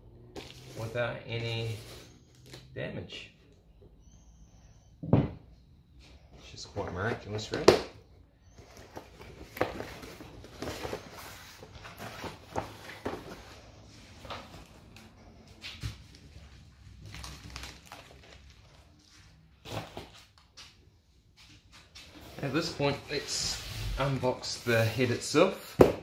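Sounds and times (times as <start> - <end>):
cardboard and plastic bags rustling: 8.5 - 20.4.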